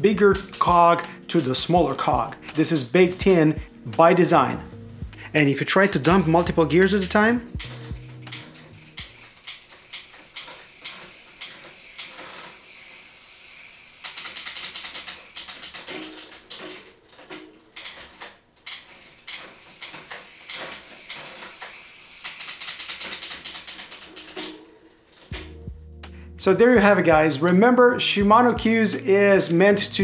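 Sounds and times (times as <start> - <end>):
bicycle chain running: 0.0 - 3.2, 6.0 - 25.6
chain clicking and rattling: 7.1 - 13.1, 14.0 - 25.6.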